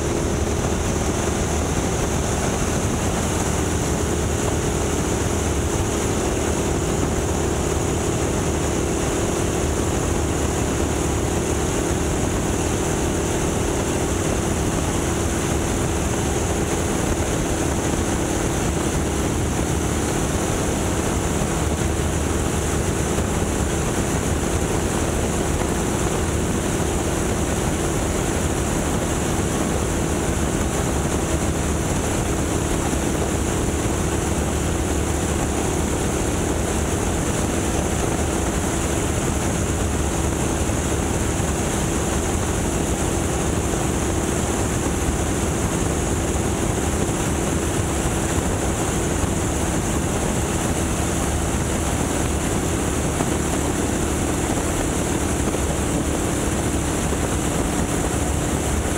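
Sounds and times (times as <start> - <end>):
biplane engine and propeller: 0.0 - 58.9
wind rush on microphone: 0.0 - 58.9.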